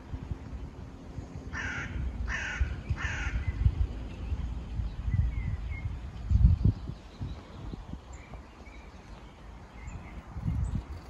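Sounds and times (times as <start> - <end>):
crow cawing: 1.5 - 3.5.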